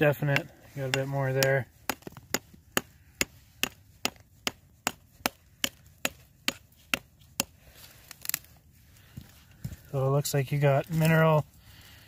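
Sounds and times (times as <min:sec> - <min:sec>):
rock hammer striking rock: 0:00.0 - 0:07.6.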